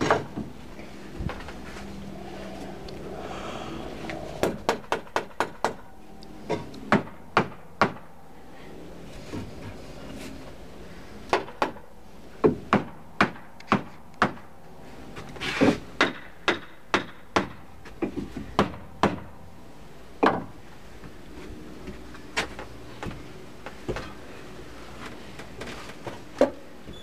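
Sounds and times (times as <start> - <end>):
hammer striking wood: 4.4 - 5.8, 6.5 - 8.1, 12.4 - 14.5, 16.0 - 19.3, 20.2 - 20.5.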